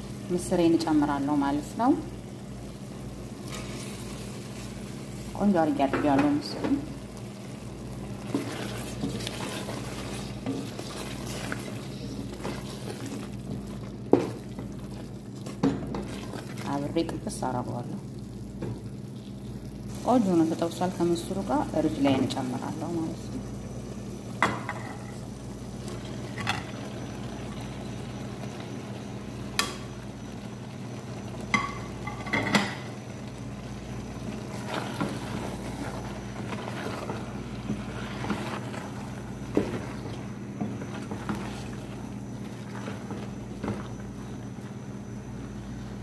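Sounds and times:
steady low hum: 0.0s - 46.0s
spatula scraping a pot: 8.2s - 13.3s, 34.5s - 40.2s.

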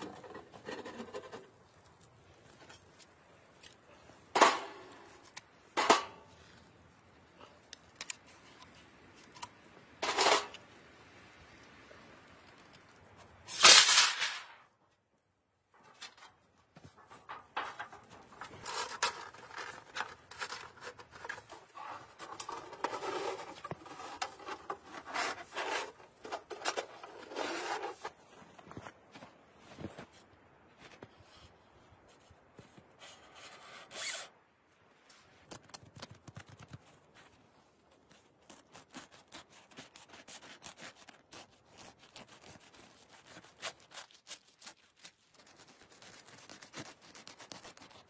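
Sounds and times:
snow shovel scraping snow: 18.4s - 28.2s.

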